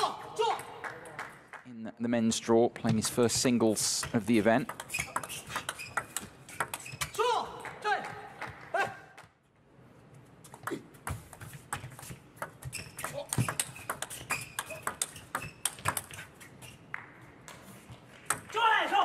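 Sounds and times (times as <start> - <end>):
table tennis ball clicking: 4.6 - 6.9, 12.4 - 16.1
shoe squeaks: 4.8 - 7.2, 12.0 - 16.9.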